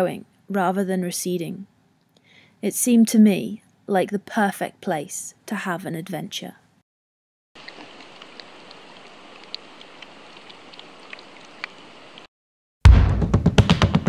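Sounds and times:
ice fizzing with tiny pops: 0:07.6 - 0:12.3
music with heavy drums: 0:12.9 - 0:14.0.

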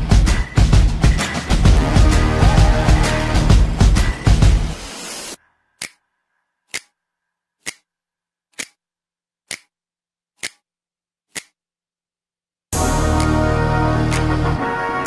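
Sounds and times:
background music: 0:00.0 - 0:05.4, 0:12.8 - 0:15.0
sharp single clicks: 0:09.5 - 0:09.7, 0:10.4 - 0:10.6.

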